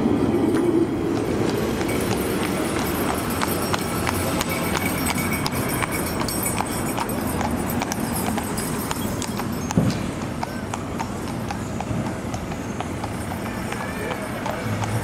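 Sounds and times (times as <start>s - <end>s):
horse hooves clip-clopping on road: 0.0s - 15.0s.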